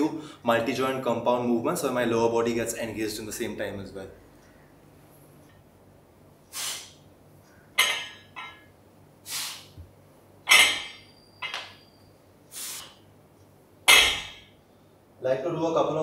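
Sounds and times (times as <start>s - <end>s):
sharp breath: 6.5s - 7.0s, 9.2s - 9.8s, 12.5s - 13.0s
barbell clanking down: 7.8s - 8.7s, 10.4s - 11.8s, 13.9s - 14.6s
weight plates rattling: 7.8s - 8.7s, 10.5s - 11.8s, 13.9s - 14.5s.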